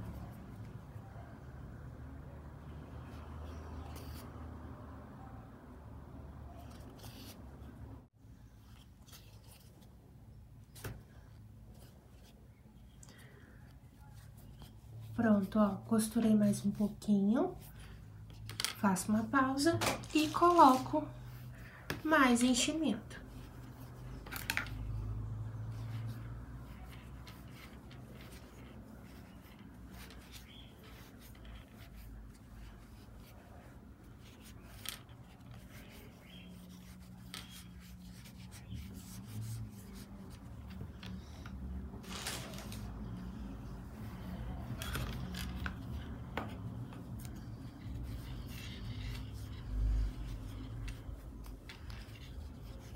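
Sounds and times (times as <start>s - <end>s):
soft yarn rustles: 6.5s - 52.9s
stuffing rubbing and scratching: 19.9s - 52.9s.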